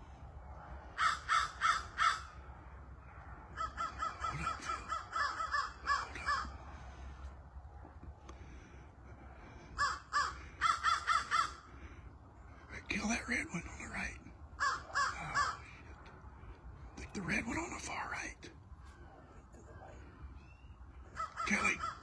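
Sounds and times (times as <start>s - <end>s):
crows cawing: 0.7s - 7.4s, 8.3s - 17.0s, 20.0s - 22.0s.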